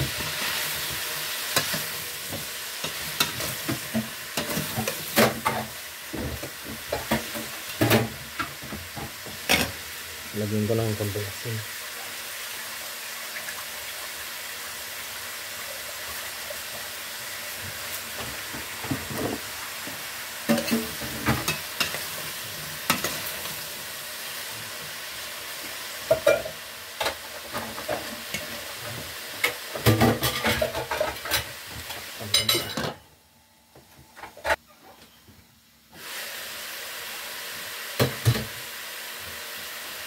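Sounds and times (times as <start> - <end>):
food sizzling in a pot: 0.0 - 33.0, 35.6 - 40.0
spoon clanking and scraping pot: 20.5 - 22.1, 26.1 - 28.6, 29.4 - 31.5, 32.3 - 33.0.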